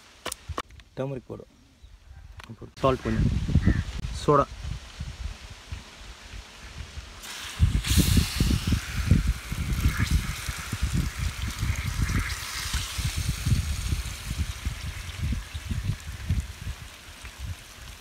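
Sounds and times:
water pouring into bowl: 8.6 - 17.6.

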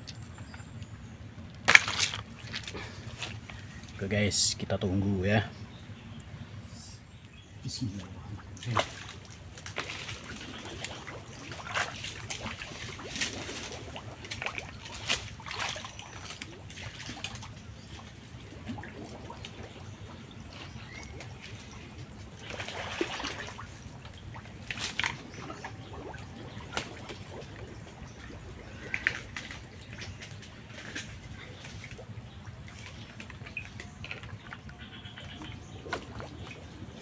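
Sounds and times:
wading splashes in water: 0.0 - 6.2, 7.8 - 37.0.

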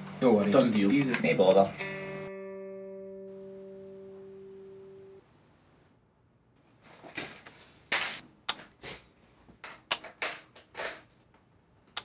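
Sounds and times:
sharp clicks and knocks: 9.6 - 12.0.

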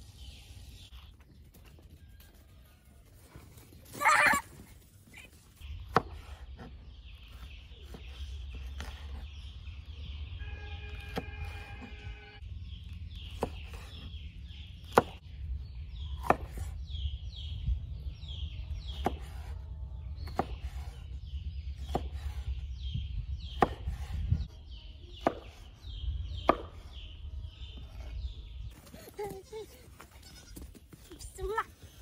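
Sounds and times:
knife chopping on wooden board: 21.8 - 22.4, 23.5 - 24.1.

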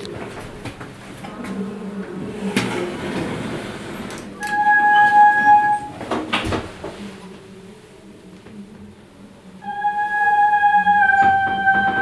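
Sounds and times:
lift doors sliding: 0.1 - 7.2.

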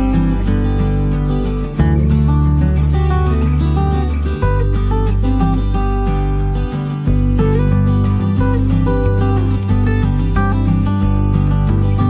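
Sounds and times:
strummed acoustic guitar music: 0.0 - 12.0.

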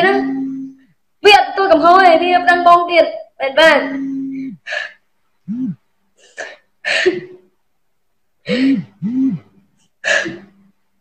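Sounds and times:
woman sobbing: 0.0 - 0.8, 5.5 - 7.5, 8.4 - 10.6.

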